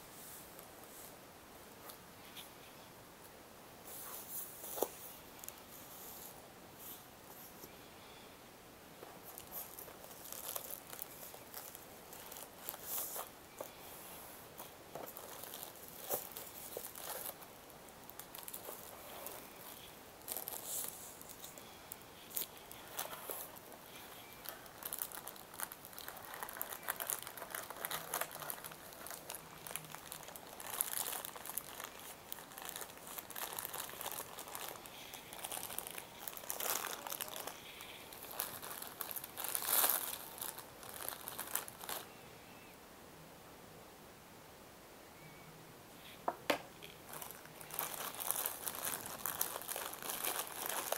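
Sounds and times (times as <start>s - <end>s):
plastic wrapping crinkling: 9.0s - 42.1s, 46.8s - 50.9s.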